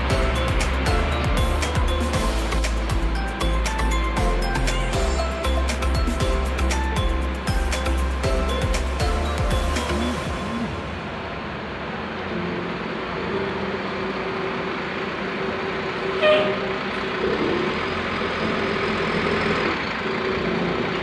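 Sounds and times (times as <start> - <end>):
diesel bus engine running: 0.0 - 21.0
short horn toot: 16.2 - 16.7.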